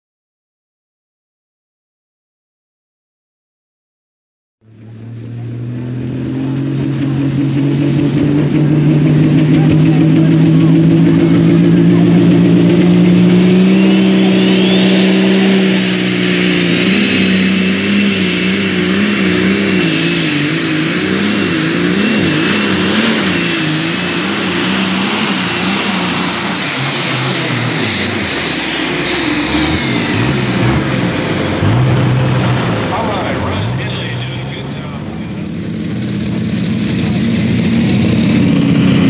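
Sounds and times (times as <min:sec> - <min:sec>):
tractor engine at full throttle: 0:04.6 - 0:39.0
turbo whistle: 0:13.5 - 0:30.8.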